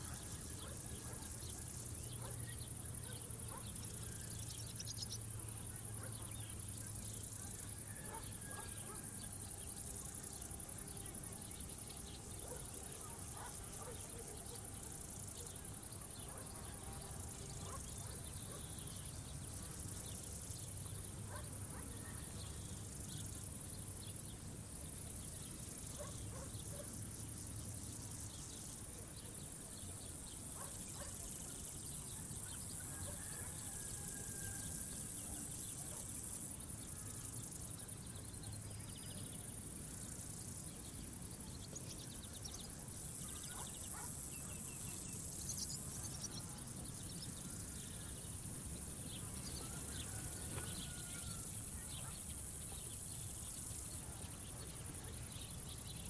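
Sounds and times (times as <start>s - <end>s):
insects chirring: 24.6s - 37.9s, 39.0s - 54.0s.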